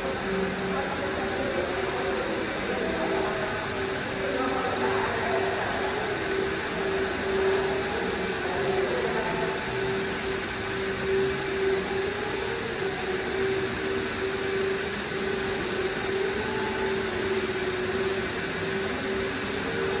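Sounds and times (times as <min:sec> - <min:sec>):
mechanical drone with low hum: 0:00.0 - 0:20.0.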